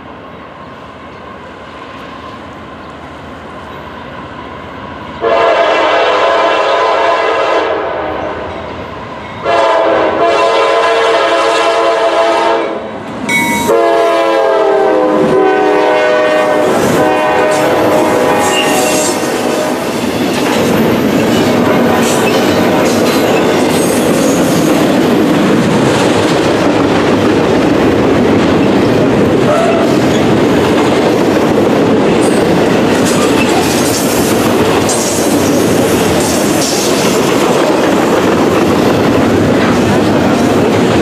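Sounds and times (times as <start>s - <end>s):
locomotive horn chords: 5.2s - 8.4s, 9.4s - 12.9s, 13.6s - 19.8s.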